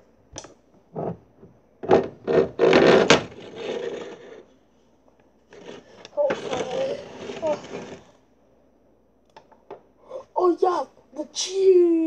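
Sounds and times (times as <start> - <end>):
plush toys rubbing and scraping: 0.9 - 4.5, 5.5 - 8.2.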